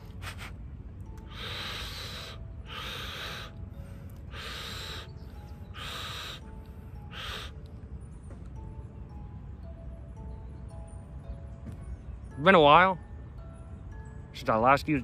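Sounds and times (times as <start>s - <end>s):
insects buzzing in pulses: 1.2s - 3.6s, 4.2s - 7.6s.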